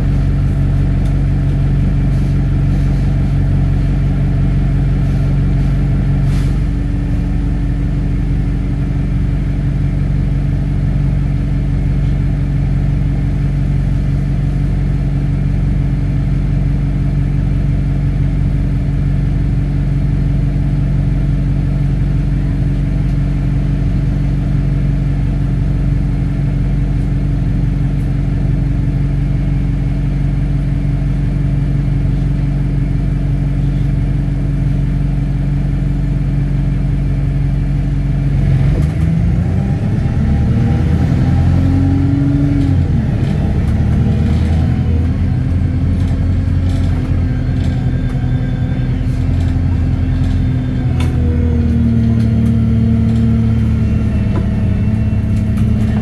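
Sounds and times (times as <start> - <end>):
bus engine droning: 0.0 - 56.0.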